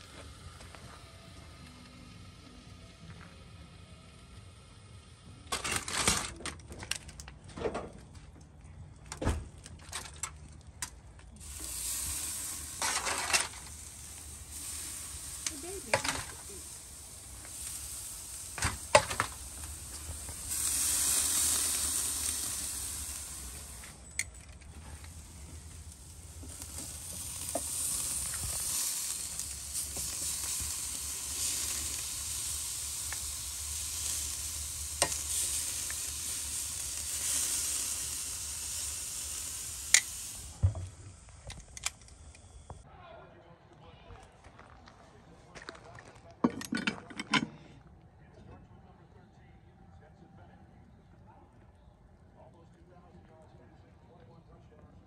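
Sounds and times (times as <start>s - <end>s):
steaks sizzling on a grill: 11.3s - 41.4s
handling clicks and knocks: 46.4s - 47.6s.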